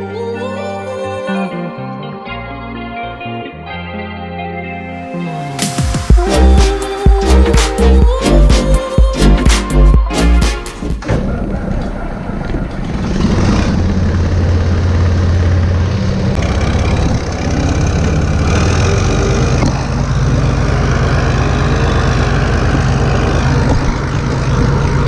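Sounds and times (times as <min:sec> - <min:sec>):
tractor diesel engine running: 0:11.0 - 0:25.0.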